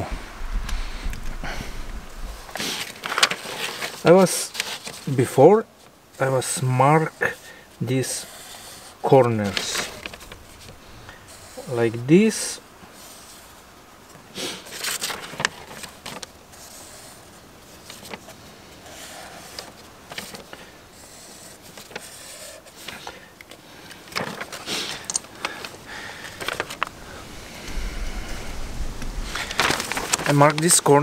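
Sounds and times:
paper rustling: 0.8 - 31.0
paper crinkling: 1.1 - 31.0
marker scratching on paper: 8.0 - 9.0, 21.0 - 22.9.

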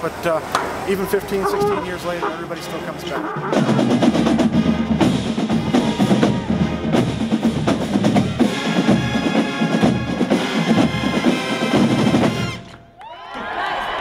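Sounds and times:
marching band playing: 1.2 - 12.9
snare and bass drums: 3.4 - 12.7.

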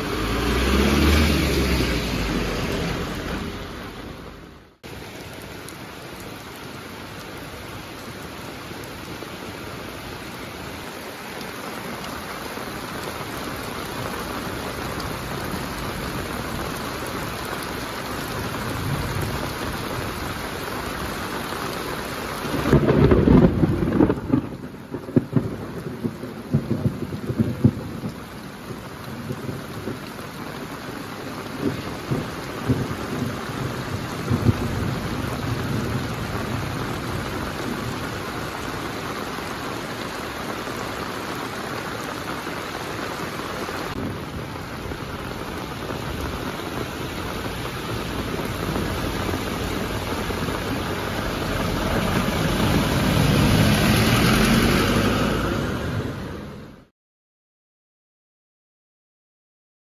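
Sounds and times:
heavy rain falling: 0.0 - 56.9
thunder rumbling: 22.4 - 40.6, 43.8 - 56.8.

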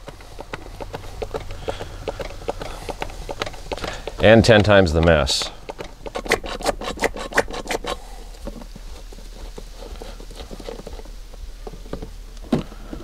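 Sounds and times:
hand oil pump clicking: 0.0 - 8.6.

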